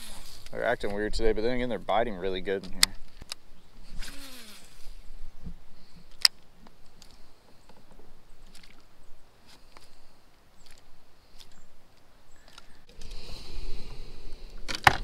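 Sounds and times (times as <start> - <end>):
fishing reel whir: 3.9 - 5.0.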